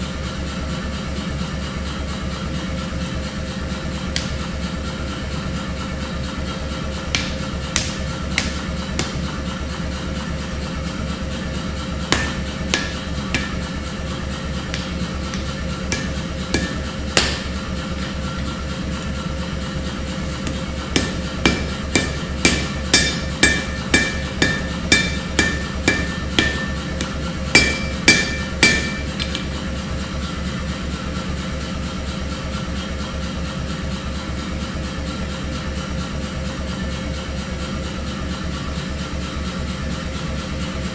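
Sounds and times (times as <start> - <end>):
steady low hum: 2.3 - 31.2
hammer striking steel on anvil: 4.2 - 4.6, 7.1 - 9.6, 12.0 - 18.1, 20.4 - 29.6.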